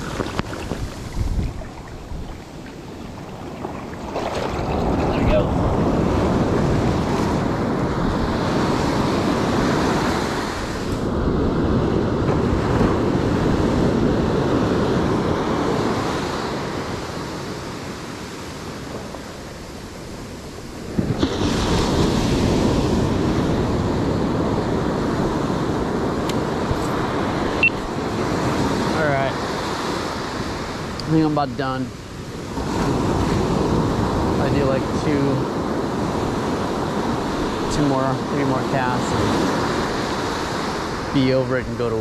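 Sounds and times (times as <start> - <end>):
wind buffeting microphone: 0.0 - 31.1
ocean surf washing up beach: 0.0 - 42.0.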